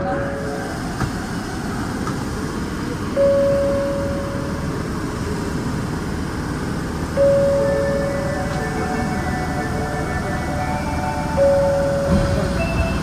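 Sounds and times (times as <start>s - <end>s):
subway train humming: 0.0s - 13.0s
single-pitch chime tone: 7.2s - 13.0s.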